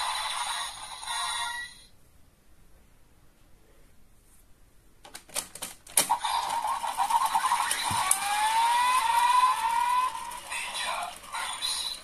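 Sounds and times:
toy ratcheting clicks: 5.9s - 12.0s
electronic buzzing whirr: 6.6s - 12.0s.

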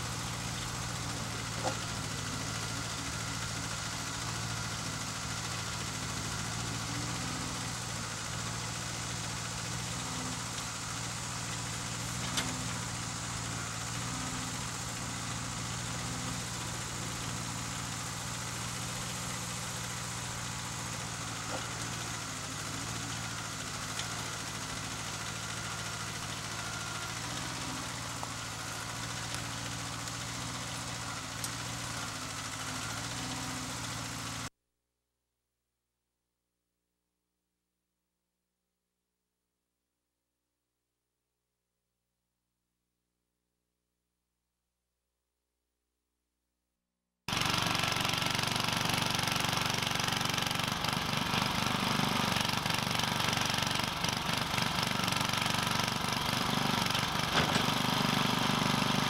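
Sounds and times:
tractor engine running: 0.0s - 34.5s, 47.3s - 59.0s.

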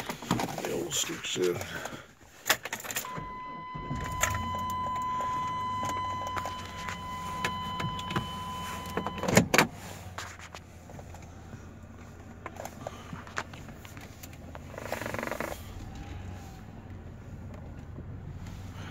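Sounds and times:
electronic warning tone: 3.0s - 9.4s
low hum: 3.0s - 9.4s.

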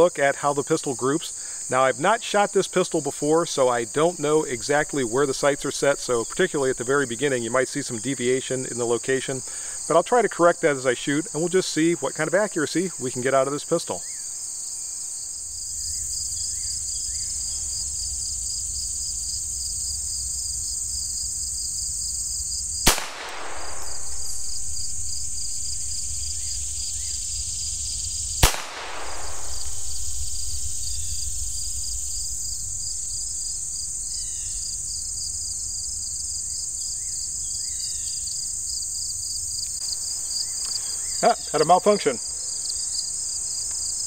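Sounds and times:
insects trilling: 0.0s - 44.0s
pistol shots: 22.9s - 25.8s, 28.4s - 31.3s.

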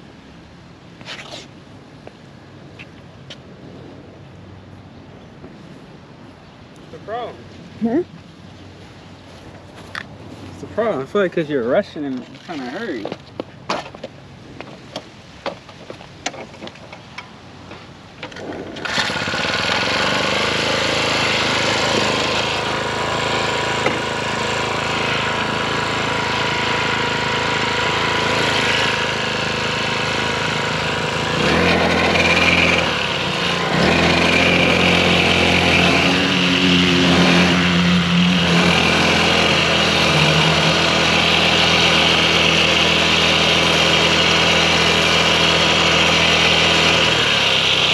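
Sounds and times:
small two-stroke engine running: 18.3s - 47.9s.

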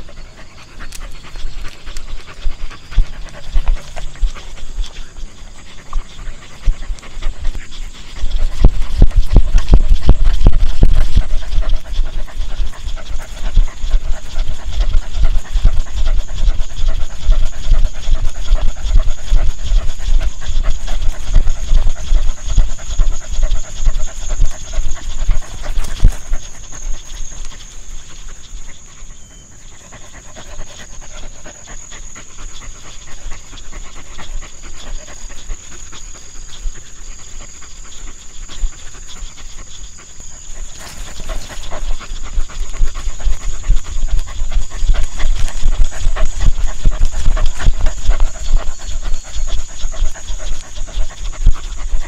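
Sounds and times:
dog panting: 0.0s - 52.0s.

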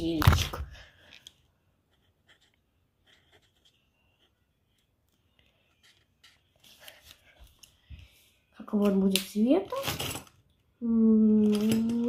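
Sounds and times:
marker scratching on paper: 1.9s - 4.5s.

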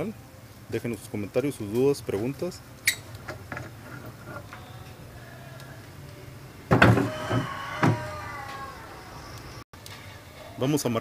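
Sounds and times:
rooster crowing: 4.6s - 6.0s, 6.8s - 9.6s
loud knocks and bumps: 6.7s - 8.1s.

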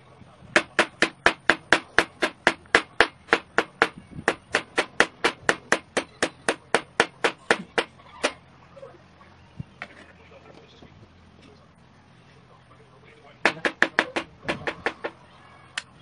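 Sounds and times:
knife chopping on plastic board: 0.6s - 7.9s, 13.5s - 15.2s.

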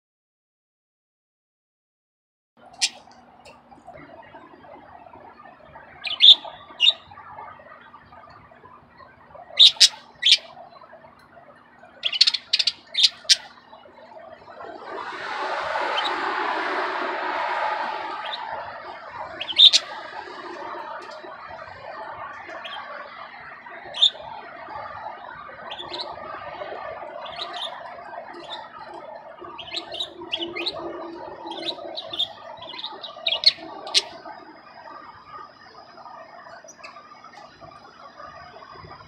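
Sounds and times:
thin steady high tone: 2.6s - 39.0s
sharp budgie chirps: 6.0s - 7.0s, 9.6s - 10.5s, 12.0s - 13.5s, 19.4s - 20.0s, 23.8s - 24.2s, 27.2s - 27.8s, 29.6s - 30.8s, 31.5s - 34.1s
budgies chattering warble: 6.0s - 7.1s, 9.6s - 10.6s, 12.0s - 13.5s, 19.4s - 20.0s, 22.5s - 23.0s, 23.8s - 24.2s, 25.6s - 26.3s, 27.2s - 28.9s, 29.5s - 30.8s, 31.5s - 34.2s.

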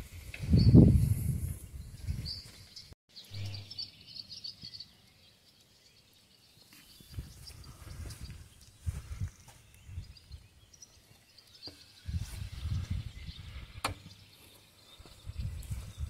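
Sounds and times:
wind buffeting microphone: 0.0s - 2.8s, 7.0s - 10.8s, 11.8s - 14.2s, 14.9s - 16.0s
faint bird chirps: 1.6s - 16.0s.

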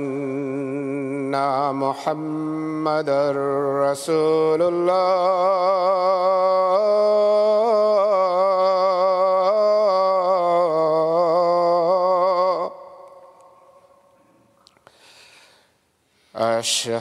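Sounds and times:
man singing call to prayer: 0.0s - 14.0s, 16.4s - 17.0s.

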